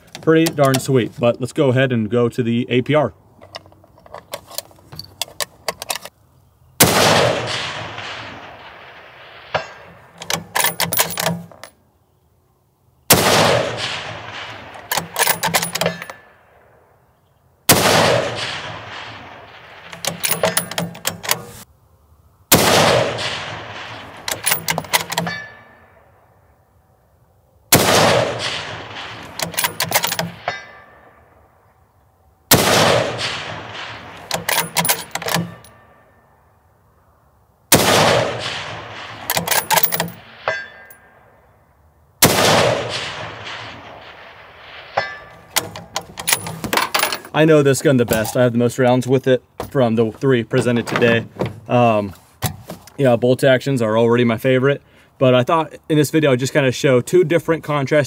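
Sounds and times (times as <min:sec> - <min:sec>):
rifle bolt clicking: 0:03.4 - 0:06.1, 0:10.2 - 0:11.7, 0:14.8 - 0:16.2, 0:19.8 - 0:21.6, 0:24.2 - 0:25.4, 0:29.3 - 0:30.4, 0:34.2 - 0:35.7, 0:39.2 - 0:40.2
rifle shots echoing: 0:06.8 - 0:11.7, 0:13.1 - 0:17.0, 0:17.7 - 0:21.6, 0:22.5 - 0:26.2, 0:27.7 - 0:31.5, 0:32.5 - 0:36.2, 0:37.7 - 0:41.4, 0:42.2 - 0:47.3.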